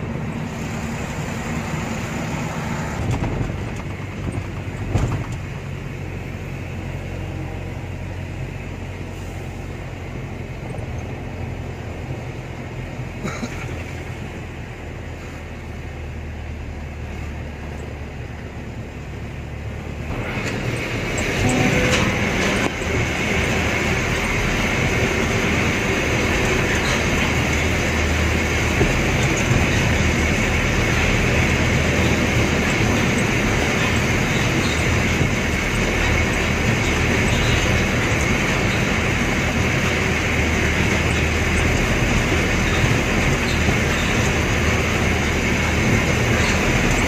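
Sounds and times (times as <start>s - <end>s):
truck engine hum: 0.0s - 47.0s.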